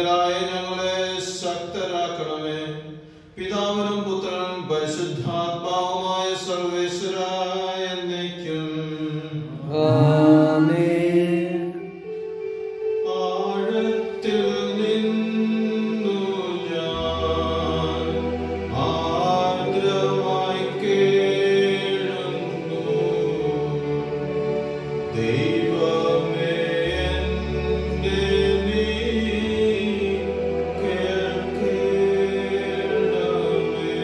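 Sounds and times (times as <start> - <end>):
voices singing liturgical chant: 8.5 - 11.9, 13.4 - 34.0.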